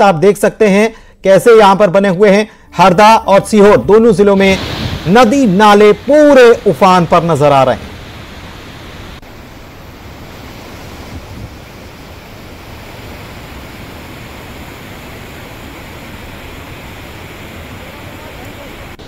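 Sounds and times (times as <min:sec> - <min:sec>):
river water rushing: 0:04.4 - 0:19.0.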